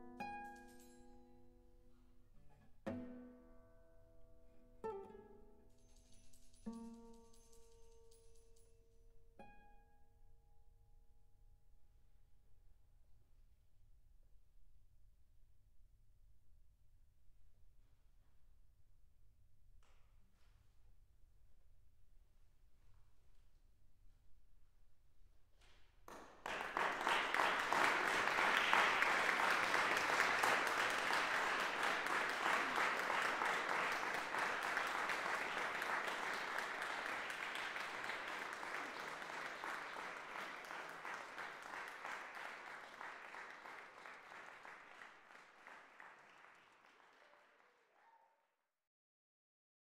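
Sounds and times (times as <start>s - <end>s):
audience applauding: 26.1s - 48.2s.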